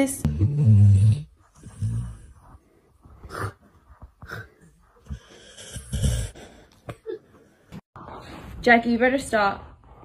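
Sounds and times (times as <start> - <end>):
dog snorting breaths: 0.7 - 8.6.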